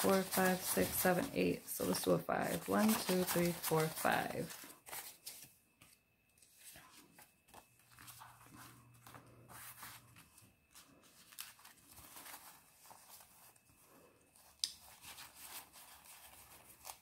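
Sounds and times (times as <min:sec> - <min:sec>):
banknotes rustling: 0:00.0 - 0:17.0.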